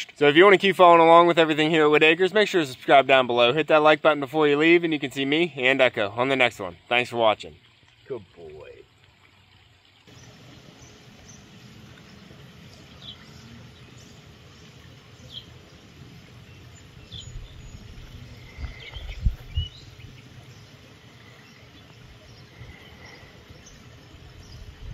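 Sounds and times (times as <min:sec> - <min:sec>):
bird chirps: 0:10.1 - 0:23.8.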